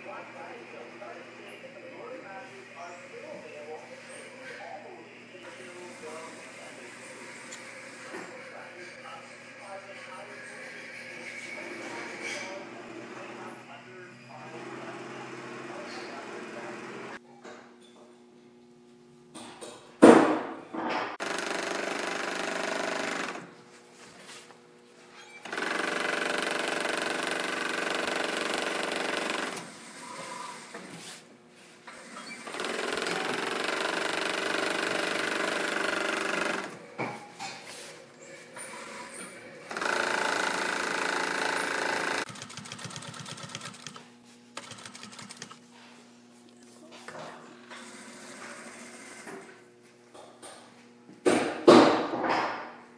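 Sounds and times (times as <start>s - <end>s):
serger blades trimming fabric: 14.3s - 17.2s, 31.9s - 36.8s, 38.7s - 42.6s
sewing machine ticking: 25.5s - 29.6s, 39.7s - 44.0s, 44.6s - 45.6s.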